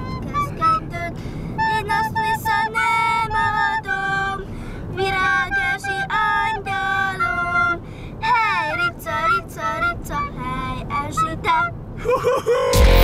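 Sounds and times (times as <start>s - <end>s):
recorder playing: 0.0s - 4.4s, 12.7s - 13.0s
car interior rumble: 0.0s - 13.0s.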